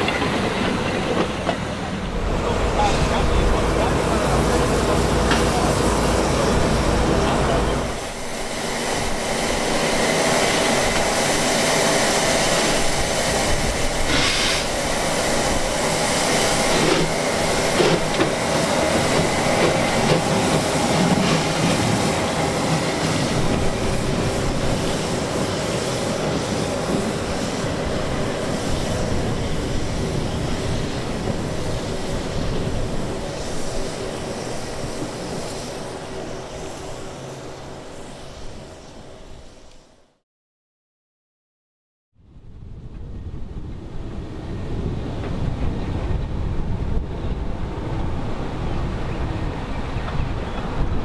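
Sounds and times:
train wheels on rails: 0.0 - 40.0, 42.8 - 51.0
diesel locomotive humming: 0.0 - 40.1
steam locomotive exhaust: 0.0 - 40.1.

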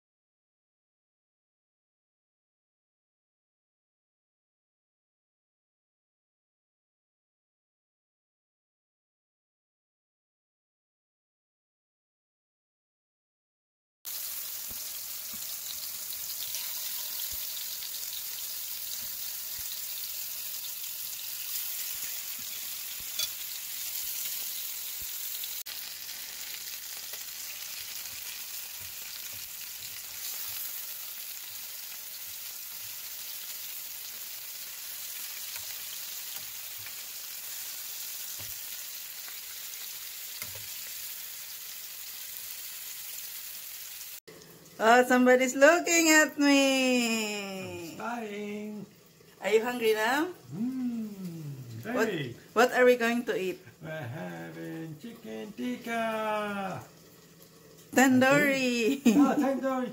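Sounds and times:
chicken sizzling in hot oil: 14.1 - 45.1, 51.2 - 59.9.

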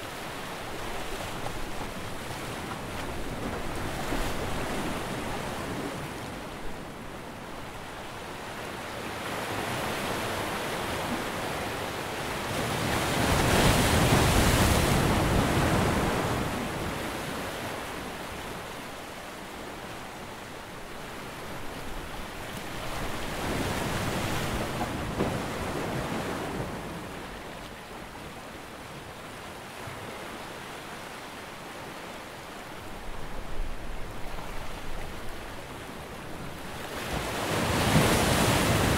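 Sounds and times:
sea waves washing in: 32.9 - 38.9.

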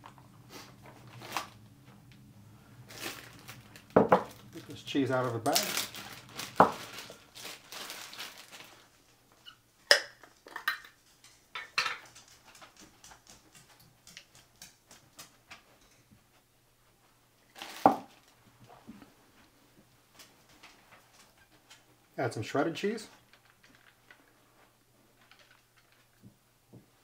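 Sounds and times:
plastic bag rustling: 0.1 - 1.6, 2.8 - 9.2, 17.5 - 19.0.

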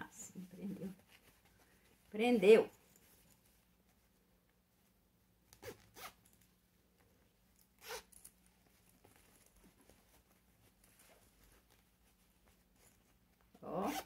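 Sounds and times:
zipper pulled: 5.5 - 6.4, 7.7 - 8.4, 13.6 - 14.0.

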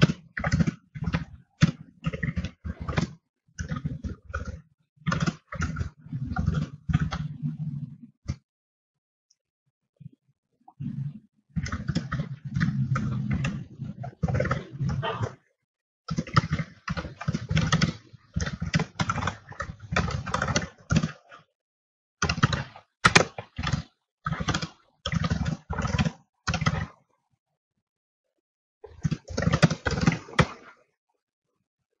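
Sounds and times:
computer keyboard typing: 0.0 - 7.4, 16.1 - 21.4, 22.2 - 27.0, 28.9 - 30.6.

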